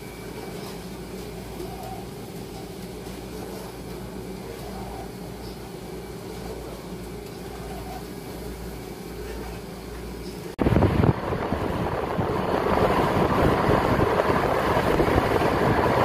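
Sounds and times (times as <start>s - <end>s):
low machine hum: 0.0s - 16.0s
wind buffeting microphone: 10.6s - 16.0s.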